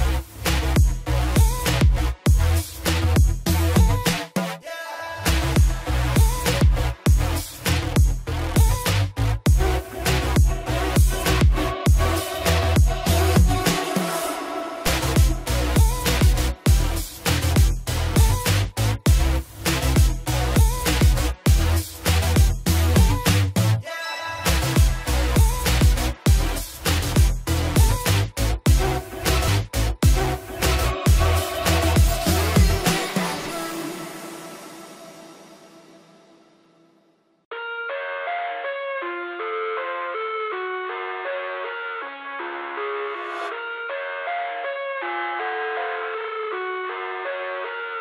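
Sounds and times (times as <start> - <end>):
electronic music with heavy beat: 0.0 - 36.1.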